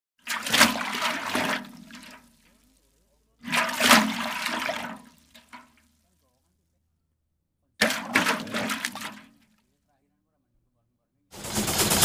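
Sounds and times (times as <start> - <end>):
toy truck splashing into water: 0.2 - 2.8, 3.4 - 5.9, 7.8 - 9.4.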